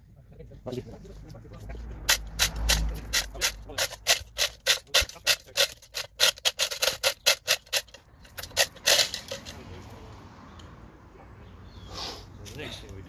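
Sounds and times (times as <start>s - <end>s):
chain block ratcheting clicks: 2.1s - 9.6s.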